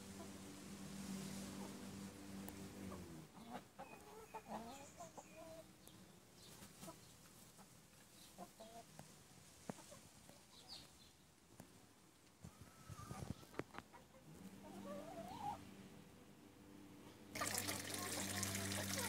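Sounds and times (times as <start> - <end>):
chickens clucking softly: 2.5 - 16.1.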